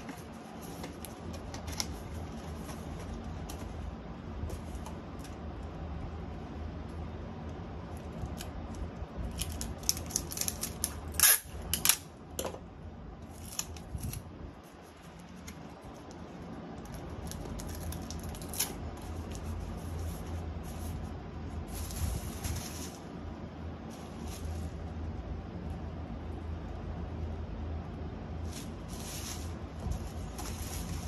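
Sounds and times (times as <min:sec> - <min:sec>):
packaging rustle: 0:09.2 - 0:11.4, 0:28.4 - 0:31.0.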